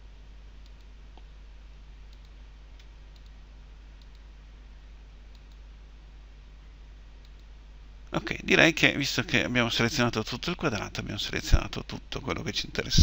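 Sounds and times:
low hum and hiss: 0.0 - 13.0
computer mouse clicks: 0.6 - 1.3, 2.1 - 3.4, 4.0 - 4.3, 5.3 - 5.6, 7.2 - 7.5.

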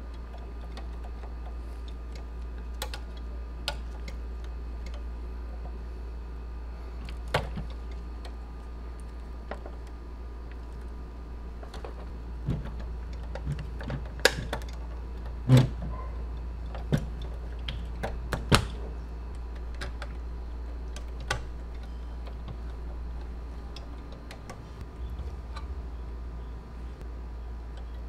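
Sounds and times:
steady low hum: 0.0 - 28.0
small clicks and taps of parts: 0.1 - 5.8.

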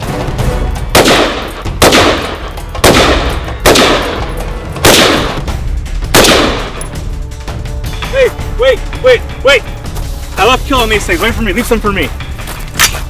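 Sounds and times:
rifle shots: 0.9 - 5.5, 6.1 - 6.8
gunshot echo: 0.9 - 6.8.

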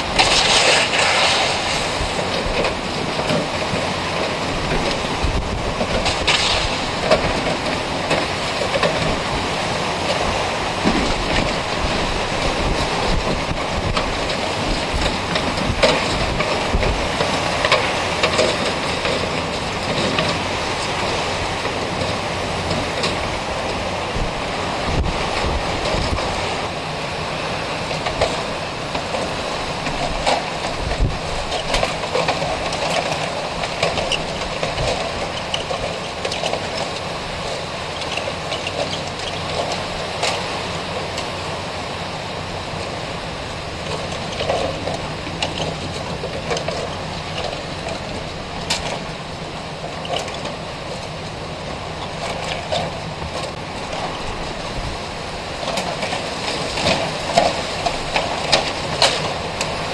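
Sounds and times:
strong wind on microphone: 4.6 - 7.4, 10.3 - 17.2, 24.1 - 26.7.

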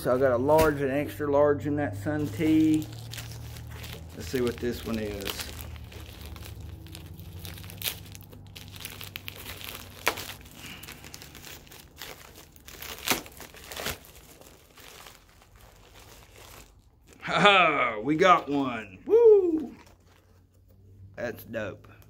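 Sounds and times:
plastic bag crinkling: 2.1 - 17.2.

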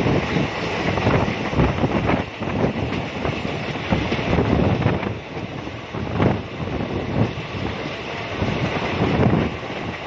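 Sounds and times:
train rumbling on track: 0.0 - 10.0
wind buffeting microphone: 0.0 - 10.0.

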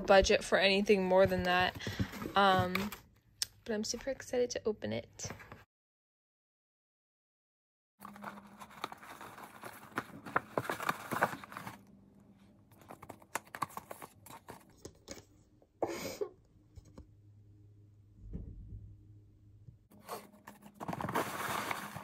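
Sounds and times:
packaging crinkling: 8.0 - 11.9, 20.1 - 22.0.

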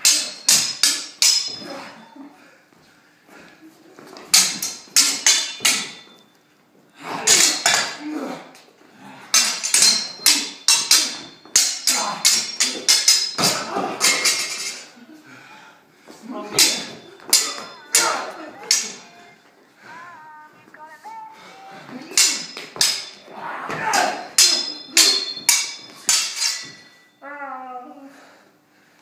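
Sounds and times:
swords clashing: 0.0 - 2.2, 4.1 - 6.3, 7.0 - 8.6, 9.2 - 14.9, 16.3 - 19.4, 21.4 - 27.2.

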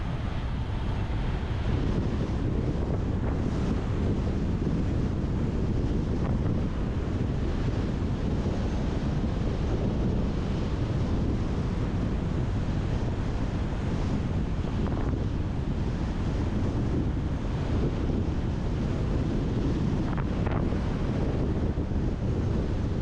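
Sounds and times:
wind rushing over microphone: 0.0 - 23.0.

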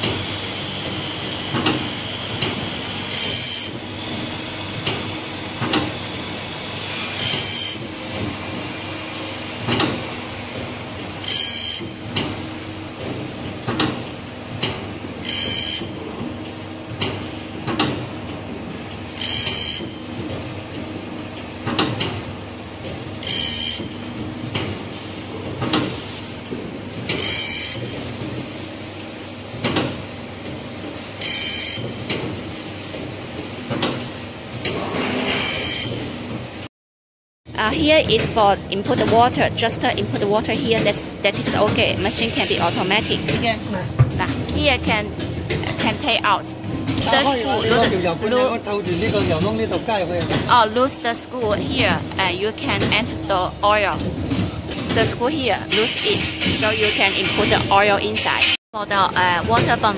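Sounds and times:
motor hum: 37.5 - 58.1.

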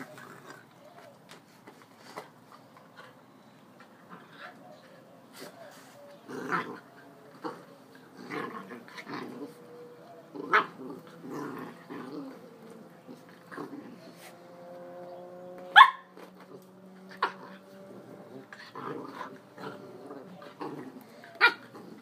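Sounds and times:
puppy growling and barking: 6.3 - 14.9, 15.5 - 22.0
puppy yipping sharply: 15.7 - 16.1.

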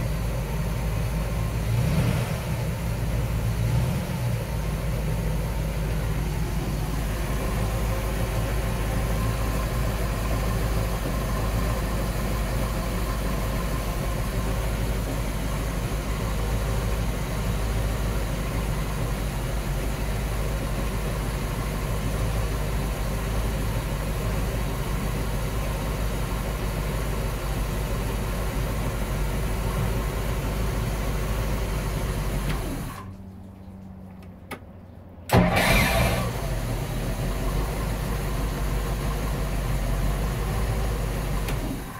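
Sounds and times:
boat engine idling: 4.6 - 34.8.

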